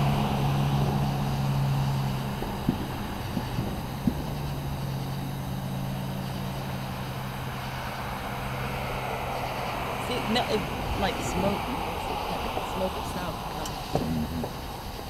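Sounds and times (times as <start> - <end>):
low motor hum: 0.0 - 15.0
distant fireworks thumps: 2.4 - 5.0.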